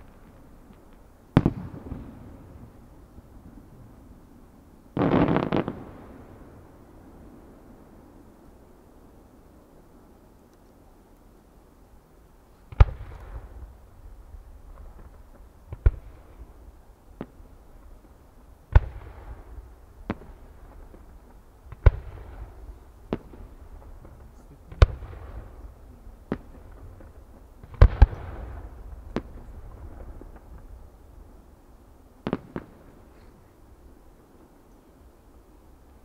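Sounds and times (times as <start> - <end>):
fireworks bangs with rumbling echo: 0.0 - 7.7, 12.7 - 31.4, 32.2 - 33.3.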